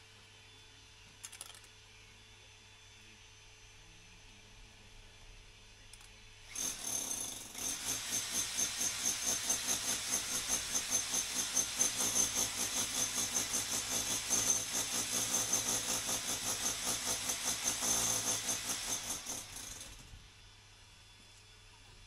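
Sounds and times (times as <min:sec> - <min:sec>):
hammer drill boring into concrete: 0:06.5 - 0:20.1.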